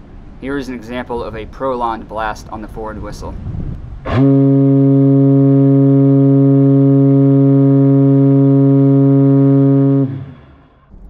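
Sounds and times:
ship whistle blast: 4.1s - 10.9s.

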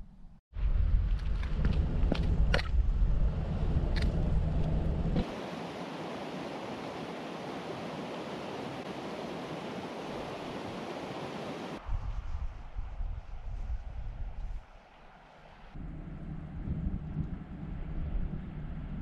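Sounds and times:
wind rumbling on microphone: 0.6s - 19.0s
stream rushing: 5.2s - 11.8s.

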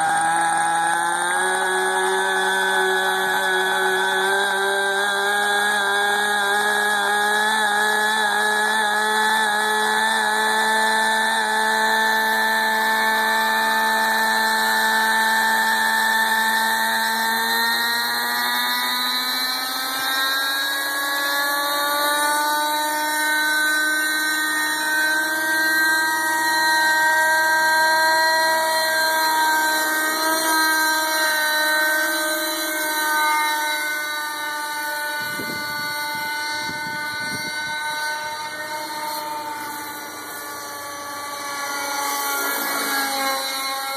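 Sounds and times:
model helicopter engine running: 0.0s - 43.9s.

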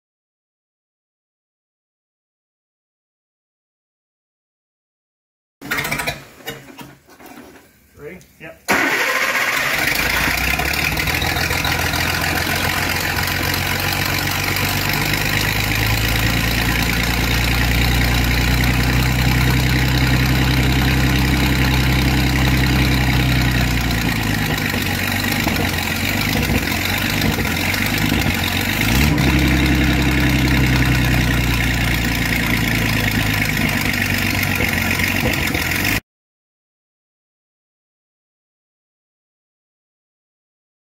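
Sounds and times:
boat engine running: 10.0s - 36.0s.

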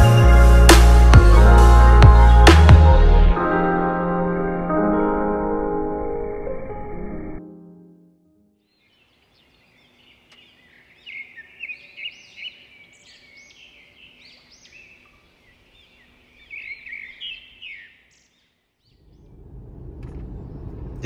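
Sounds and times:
small birds chirping: 8.6s - 19.5s.

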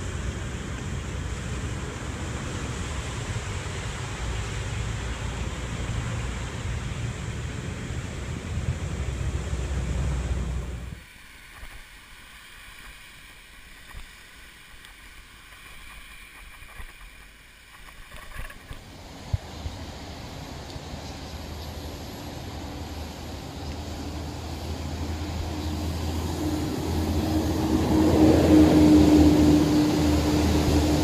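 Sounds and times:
faint clicks: 11.5s - 18.8s.

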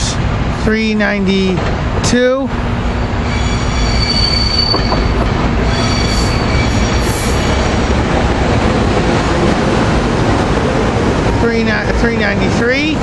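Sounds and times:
train wheels rumbling on rails: 0.0s - 13.0s
high wheel squeal: 2.9s - 7.9s.

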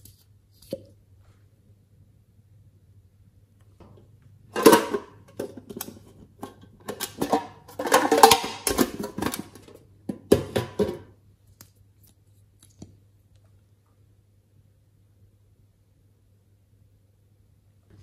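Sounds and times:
tin box clattering and rattling: 4.6s - 9.6s.

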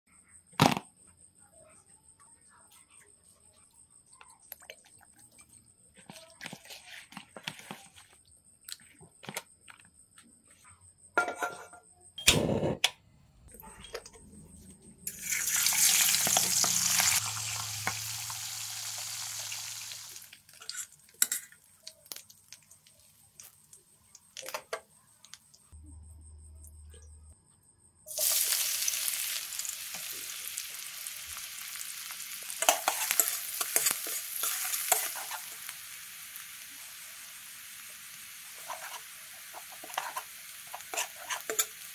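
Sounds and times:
kitchen taps and knocks: 11.2s - 11.9s
fish sizzling in hot oil: 15.1s - 23.8s, 28.1s - 41.9s.

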